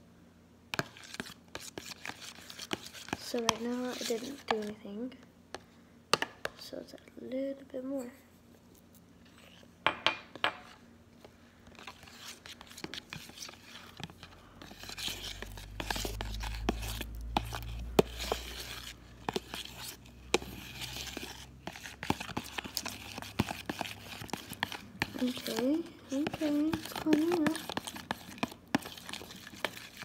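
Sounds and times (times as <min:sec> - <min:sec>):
metal spoon scraping plastic bowl: 0:00.8 - 0:04.8, 0:11.7 - 0:30.0.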